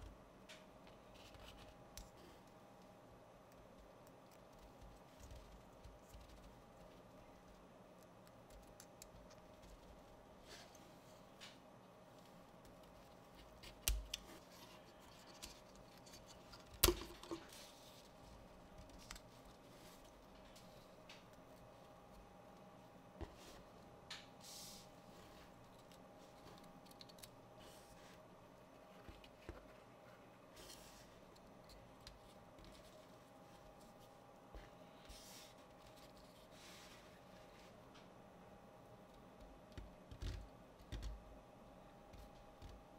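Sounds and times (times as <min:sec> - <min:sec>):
soft scrapes: 0:36.3 - 0:37.8.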